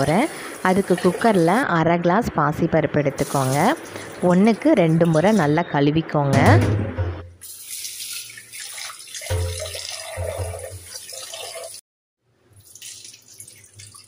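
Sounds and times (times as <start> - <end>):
water splashing into steel sink: 7.4 - 11.8, 12.5 - 14.0
tap running into pot: 9.2 - 11.0.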